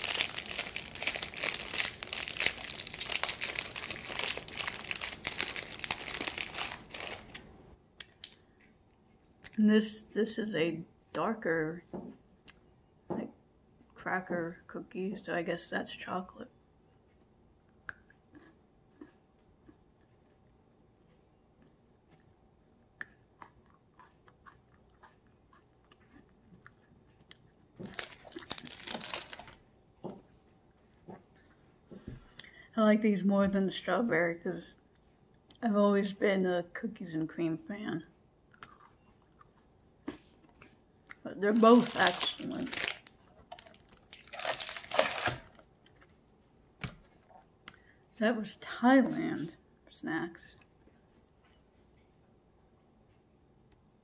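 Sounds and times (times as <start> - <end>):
crisp biscuit crunching: 0.0 - 8.4, 23.0 - 29.7, 38.5 - 39.7, 40.6 - 46.1
plastic snack wrapper crinkling: 0.0 - 8.4, 27.8 - 29.6, 41.3 - 46.1
soft chewing clicks: 16.9 - 28.5, 38.5 - 41.2.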